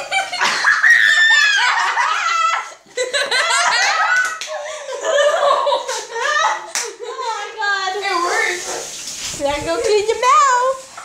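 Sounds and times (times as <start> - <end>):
children laughing and squealing: 0.0 - 8.6.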